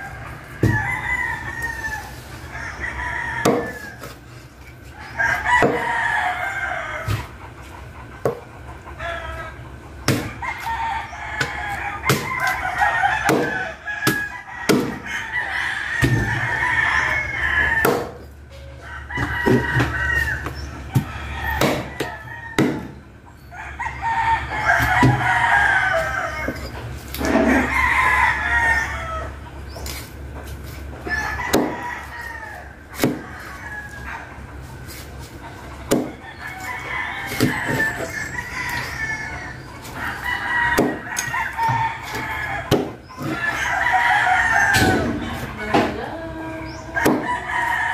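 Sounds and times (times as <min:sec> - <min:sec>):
chickens clucking: 0:00.0 - 0:47.9
roosters crowing: 0:00.0 - 0:47.9
cleaver chopping on wooden board: 0:03.4 - 0:03.7, 0:05.6 - 0:05.9, 0:10.1 - 0:10.4, 0:11.4 - 0:12.5, 0:13.2 - 0:15.0, 0:17.8 - 0:18.2, 0:21.0 - 0:23.0, 0:31.5 - 0:31.8, 0:33.0 - 0:33.2, 0:35.9 - 0:36.2, 0:40.7 - 0:43.4, 0:47.0 - 0:47.3.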